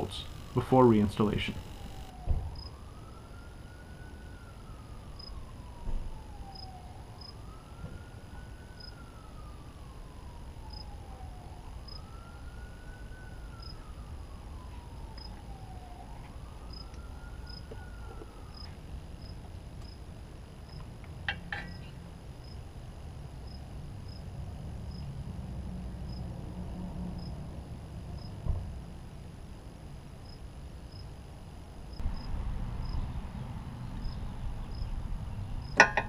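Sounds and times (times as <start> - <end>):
distant siren wailing: 0.0 - 19.5
low outdoor rumble: 8.2 - 36.0.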